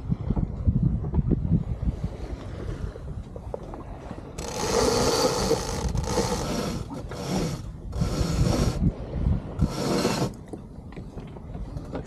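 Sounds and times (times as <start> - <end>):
rope rasping through block: 4.4 - 8.8, 9.6 - 10.4.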